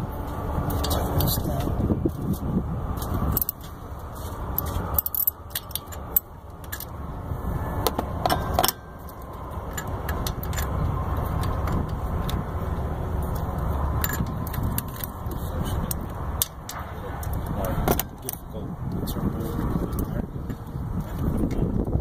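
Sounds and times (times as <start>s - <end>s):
steady low rumble: 0.0s - 22.0s
metal tools clinking: 3.0s - 3.8s, 4.5s - 6.9s, 8.2s - 12.4s, 13.2s - 15.2s.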